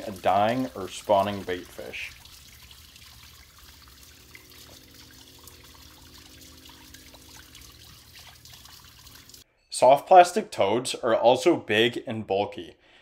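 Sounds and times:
faint steady drone: 0.0 - 9.4
water trickling and lapping: 0.0 - 9.4.

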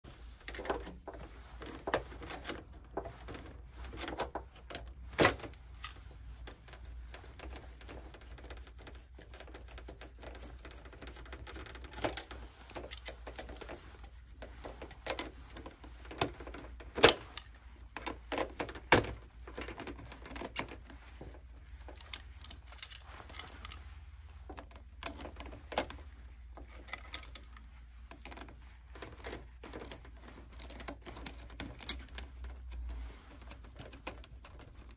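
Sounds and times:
plastic part clicks and rattles: 26.6 - 32.8.

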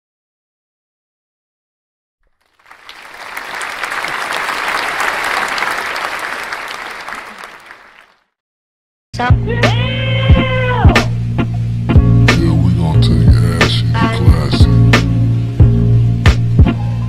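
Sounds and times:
crowd applause: 2.4 - 8.2
music with deep bass and sliding notes: 9.3 - 17.0.

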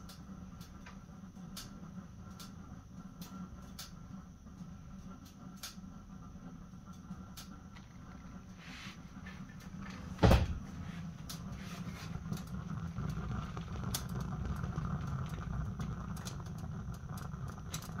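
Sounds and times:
fire crackling: 0.0 - 18.0
fire rumbling in a stove: 0.0 - 18.0
loud thump: 10.2 - 10.6.

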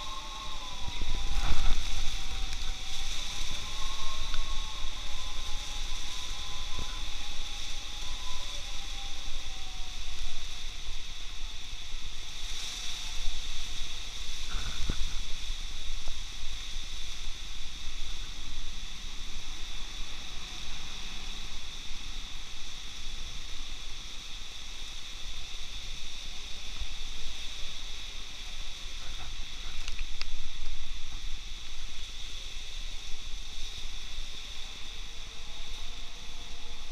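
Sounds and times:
heavy rain hissing: 0.0 - 36.9
wind rumbling on microphone: 0.0 - 36.9.

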